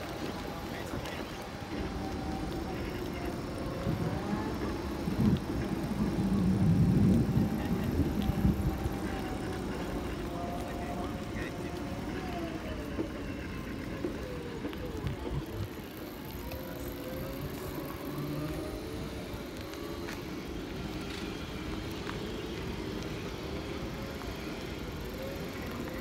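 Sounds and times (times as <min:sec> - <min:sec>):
electric motors whining: 0:00.0 - 0:26.0
tyres on pavement: 0:00.0 - 0:26.0
wind on microphone: 0:03.4 - 0:11.2.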